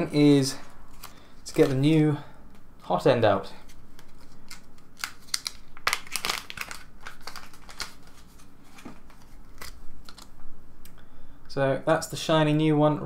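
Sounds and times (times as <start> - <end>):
plastic packet crinkling: 3.9 - 10.3.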